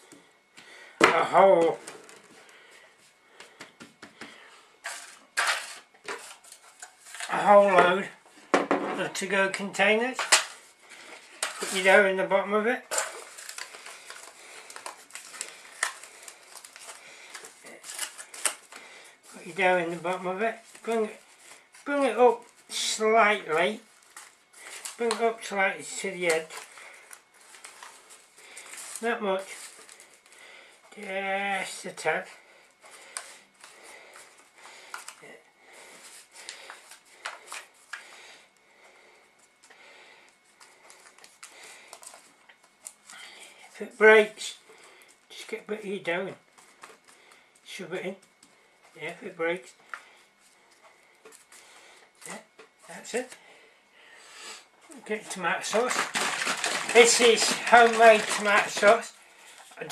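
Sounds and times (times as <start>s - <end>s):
aluminium foil container crinkling: 4.8s - 7.8s, 10.1s - 12.1s, 12.8s - 30.6s, 55.0s - 59.9s.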